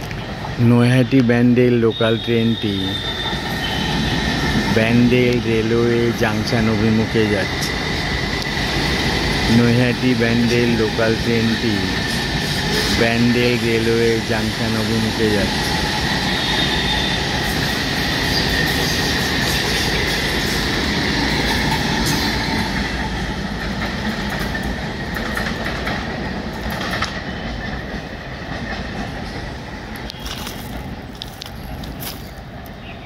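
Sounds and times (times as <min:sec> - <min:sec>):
high-pitched train whine: 0:00.0 - 0:33.0
train wheels rumbling on rails: 0:00.0 - 0:33.0.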